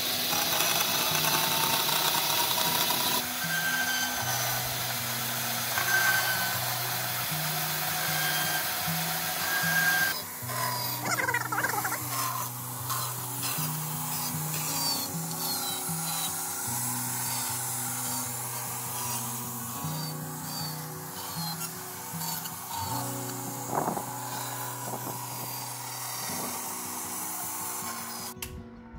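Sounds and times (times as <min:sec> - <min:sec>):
bandsaw cutting board: 0:00.0 - 0:28.4.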